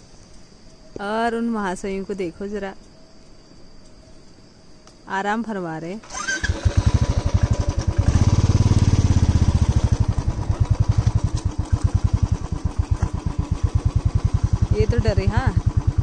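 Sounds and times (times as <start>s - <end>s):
motorcycle engine starting and revving: 6.0s - 16.0s.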